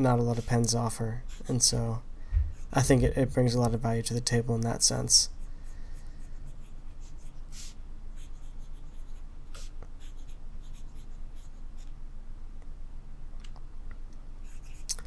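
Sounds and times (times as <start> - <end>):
pen nib scratching paper: 1.3 - 1.7, 6.3 - 11.9.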